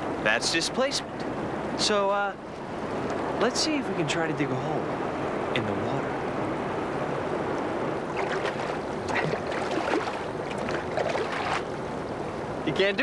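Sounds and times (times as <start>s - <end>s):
rushing river water: 0.0s - 13.0s.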